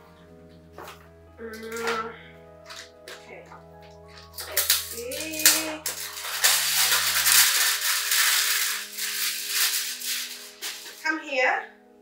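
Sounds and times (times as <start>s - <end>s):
background music: 0.0s - 12.0s
plastic wrapping crinkling: 2.6s - 11.2s.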